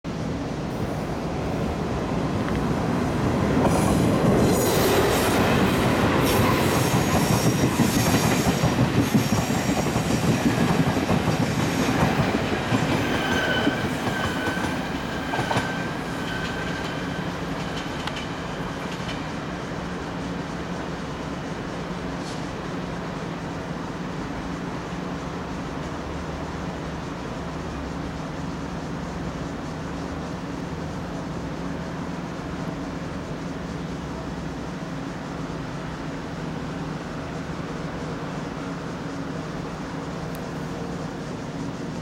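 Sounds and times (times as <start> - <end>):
train wheels rattling over track: 0.6 - 42.0
low steady wheel squeal: 3.6 - 21.4
high-pitched wheel squeal: 12.9 - 17.7.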